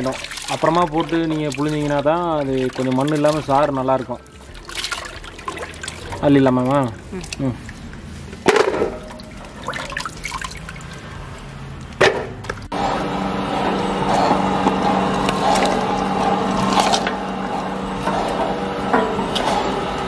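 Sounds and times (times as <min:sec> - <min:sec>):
water sloshing and dripping: 0:00.0 - 0:12.8, 0:13.6 - 0:20.0
juicer machine humming: 0:12.5 - 0:20.0.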